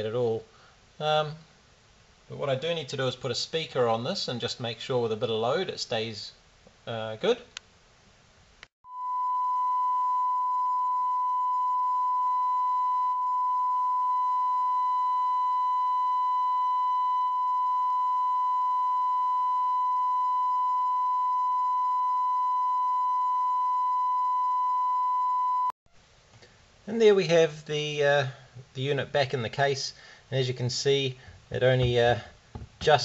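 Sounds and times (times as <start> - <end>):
sine test tone: 8.8 - 25.8.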